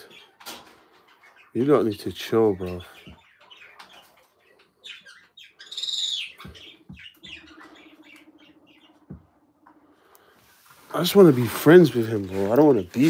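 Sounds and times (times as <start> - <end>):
bird chirp: 0.0 - 13.0
scratching and rustling: 6.2 - 13.0.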